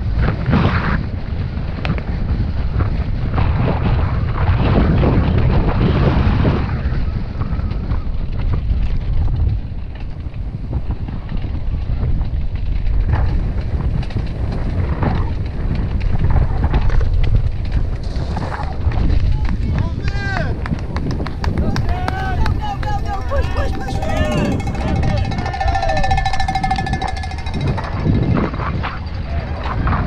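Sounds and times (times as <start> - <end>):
bike rumbling and rattling: 0.0 - 30.0
wind buffeting microphone: 0.0 - 30.0.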